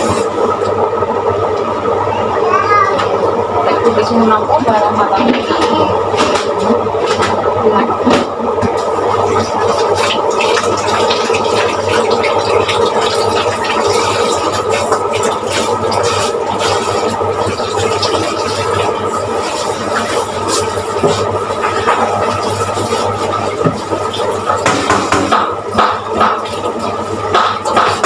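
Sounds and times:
steady low hum: 0:00.0 - 0:28.0
tap water running into sink: 0:08.0 - 0:28.0.

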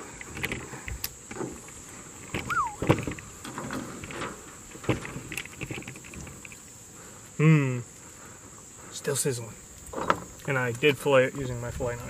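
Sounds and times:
short falling squeak: 0:02.4 - 0:03.0.

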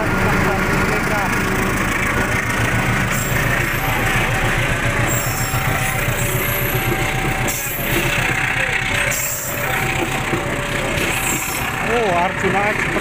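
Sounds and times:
locomotive engine drone: 0:00.0 - 0:13.0
train wheels rumbling on rails: 0:00.0 - 0:13.0.

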